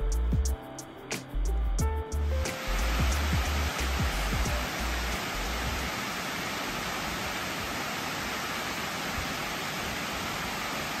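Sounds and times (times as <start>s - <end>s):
water pouring over dam: 2.5s - 11.0s.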